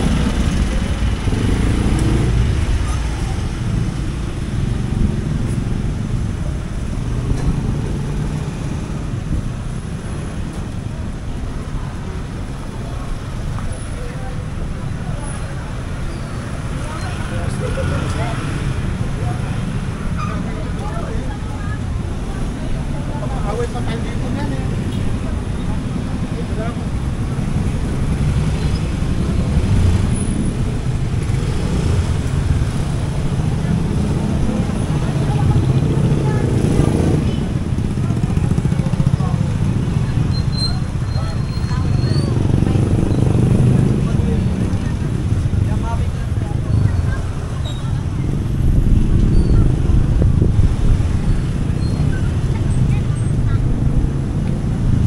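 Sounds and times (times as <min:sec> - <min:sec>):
road noise: 0:00.0 - 0:55.0
street traffic rumble: 0:00.0 - 0:55.0
vehicle engines running: 0:00.0 - 0:55.0.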